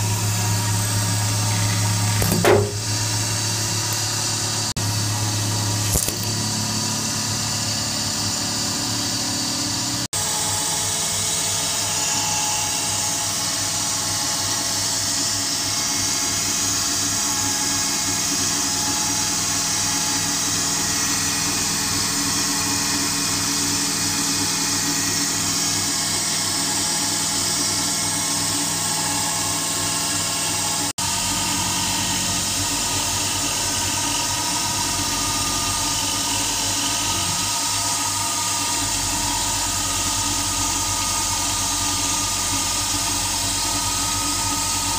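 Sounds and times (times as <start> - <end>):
spindle whine: 0.0 - 14.6.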